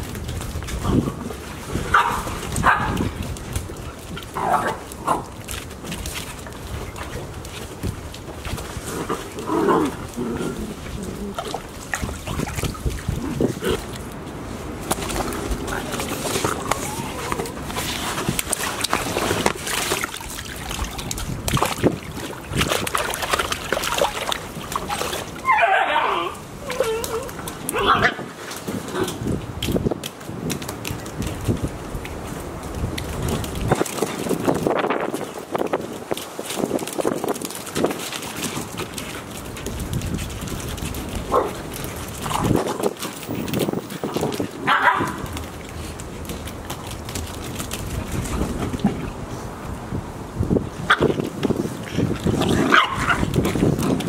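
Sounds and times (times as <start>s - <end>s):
puppies splashing through water: 0.0s - 54.0s
water sloshing: 0.0s - 54.0s
puppies barking: 1.9s - 3.0s, 25.4s - 27.1s, 44.6s - 45.2s.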